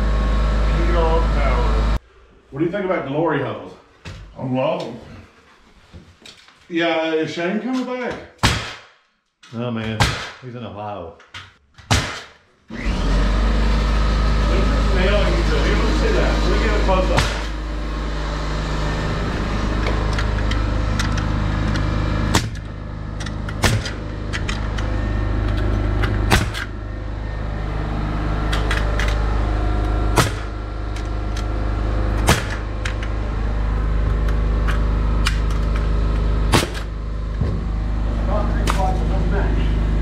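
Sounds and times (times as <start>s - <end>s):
nail gun shots: 8.4s - 9.0s, 9.8s - 10.5s, 11.8s - 12.5s, 17.1s - 17.6s, 22.3s - 22.7s, 23.5s - 24.0s, 26.3s - 26.7s, 30.2s - 30.5s, 32.2s - 32.7s, 36.5s - 36.9s
steady low hum: 13.6s - 40.0s.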